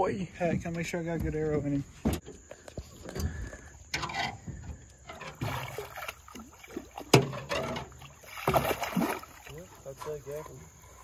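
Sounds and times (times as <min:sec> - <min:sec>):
water splashing against boat hull: 0:04.1 - 0:11.0.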